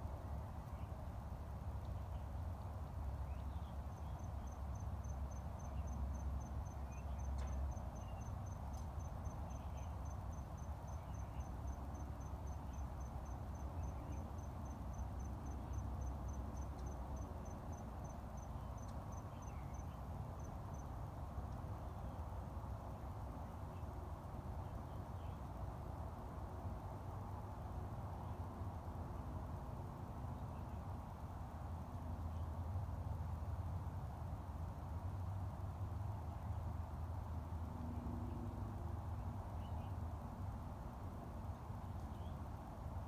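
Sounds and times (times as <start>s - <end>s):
insect chirping: 3.2s - 21.0s.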